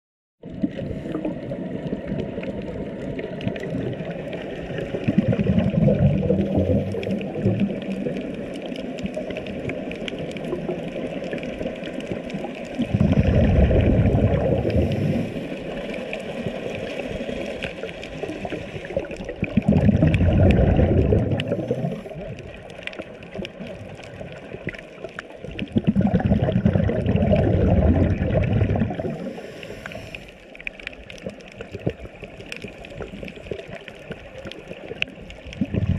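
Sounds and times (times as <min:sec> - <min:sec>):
loud bubbling rush: 0:00.4 - 0:30.2, 0:31.0 - 0:35.9
underwater watery hiss: 0:11.2 - 0:24.8, 0:25.9 - 0:31.4.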